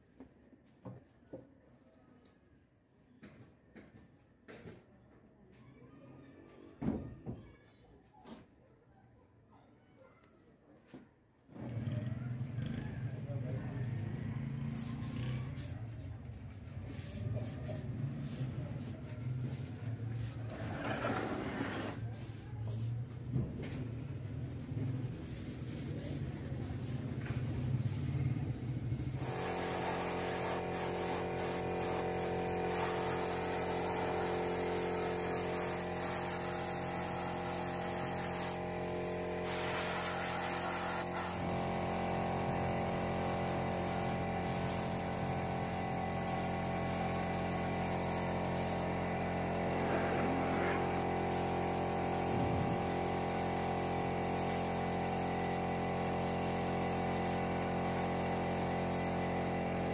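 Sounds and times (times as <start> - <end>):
spray gun hissing: 29.2 - 49.6, 50.9 - 59.6.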